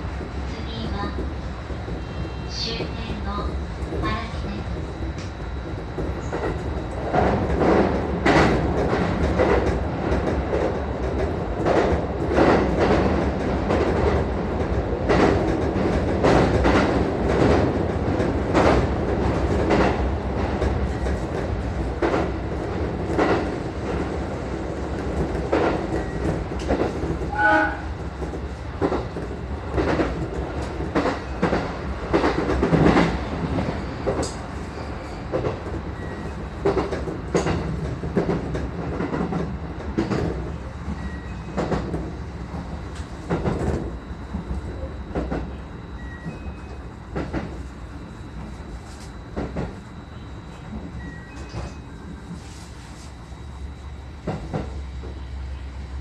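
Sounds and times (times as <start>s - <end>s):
train rumble: 0.0s - 56.0s
brief tone: 36.0s - 36.4s, 40.9s - 41.6s, 45.8s - 46.8s, 50.1s - 52.2s.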